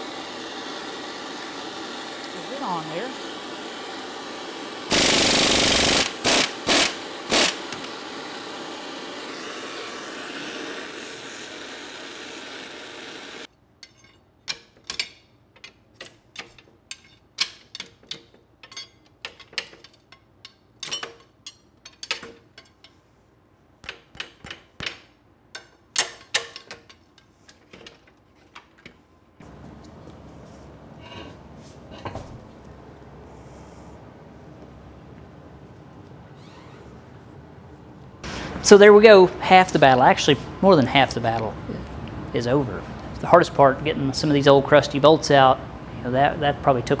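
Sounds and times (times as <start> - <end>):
pneumatic impact wrench hammering: 4.1 - 9.4
metal parts clinking and knocking: 13.8 - 23.0.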